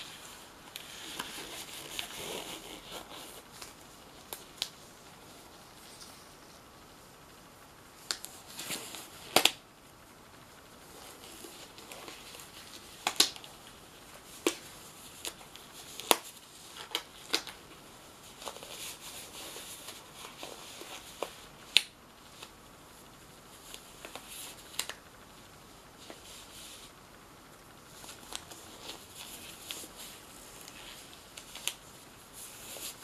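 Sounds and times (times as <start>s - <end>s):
rubbery rustling: 0.0s - 6.7s, 27.9s - 33.0s
latex gloves snapping: 13.0s - 13.4s.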